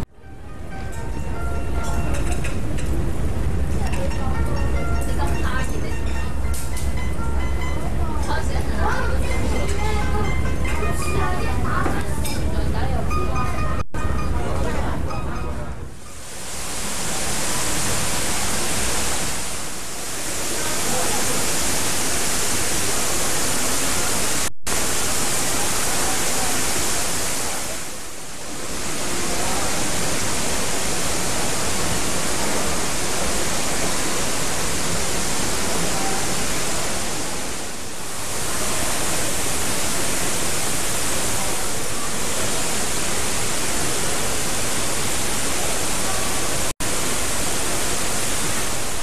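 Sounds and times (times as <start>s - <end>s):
loud steady hiss: 15.8s - 49.0s.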